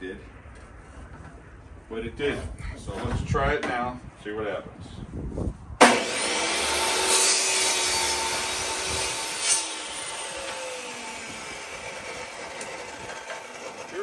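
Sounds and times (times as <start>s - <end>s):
miter saw cutting wood: 5.8s - 14.0s.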